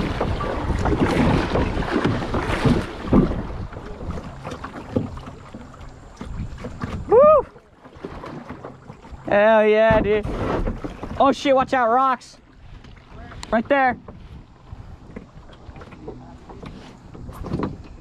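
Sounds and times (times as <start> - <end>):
kayak paddle splashing: 0.0 - 18.0
person whooping: 7.1 - 7.6.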